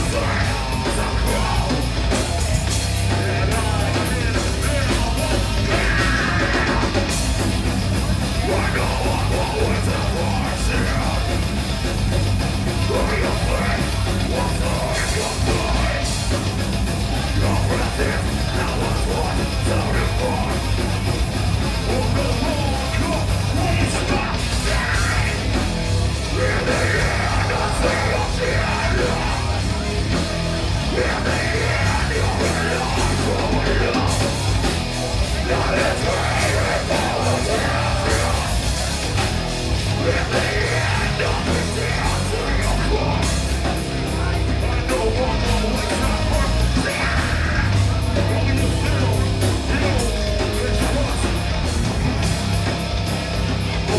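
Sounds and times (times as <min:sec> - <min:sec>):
singer yelling into microphone: 0:00.0 - 0:02.0, 0:03.0 - 0:07.1, 0:12.8 - 0:16.3, 0:17.0 - 0:20.8, 0:21.8 - 0:51.6
bass guitar: 0:00.0 - 0:53.9
distorted electric guitar: 0:00.0 - 0:53.9
drums: 0:00.0 - 0:53.9.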